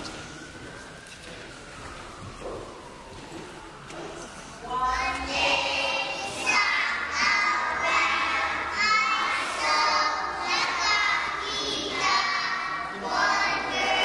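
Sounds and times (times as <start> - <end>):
young children singing: 4.6 - 14.0.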